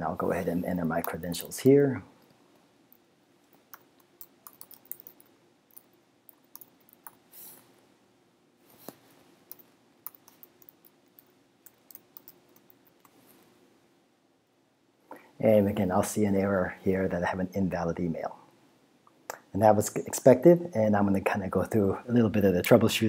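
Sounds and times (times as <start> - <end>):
faint keyboard keystroke clicks: 3.5 - 7.2, 9.5 - 13.2.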